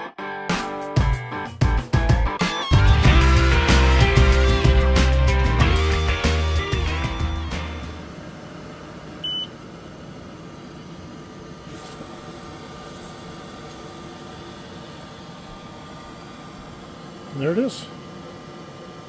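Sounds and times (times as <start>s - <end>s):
laser engraver fan hiss: 7.8s - 19.0s.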